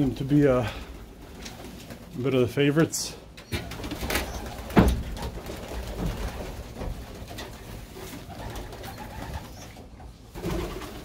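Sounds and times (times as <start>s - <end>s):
pigeons cooing softly: 3.4s - 4.7s, 7.4s - 11.0s.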